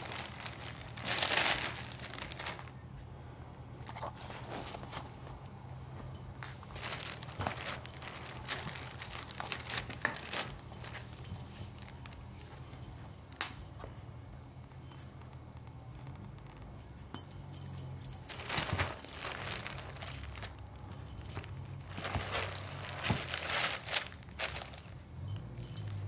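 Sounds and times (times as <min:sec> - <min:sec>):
plastic bag rustling and crinkling: 0:00.0 - 0:02.8, 0:06.1 - 0:13.5, 0:17.5 - 0:25.0.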